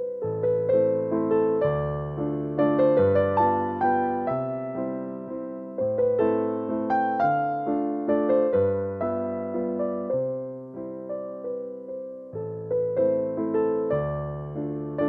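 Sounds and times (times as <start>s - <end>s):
slow piano piece: 0.0s - 15.0s.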